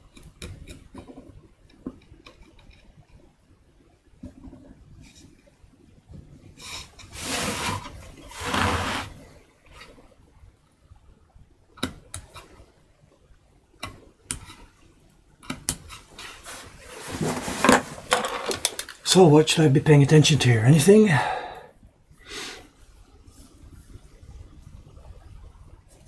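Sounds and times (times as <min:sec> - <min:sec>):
soft rubbing on wood: 0:06.6 - 0:09.2, 0:15.9 - 0:18.1
knife scraping wood: 0:07.1 - 0:09.2.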